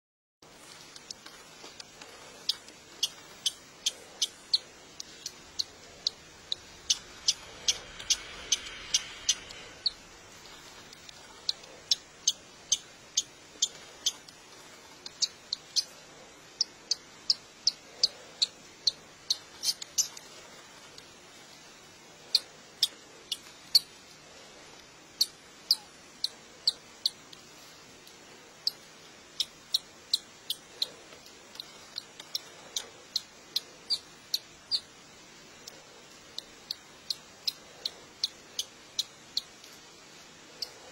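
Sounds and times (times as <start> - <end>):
chick peeping high squeaks: 25.2 - 27.2.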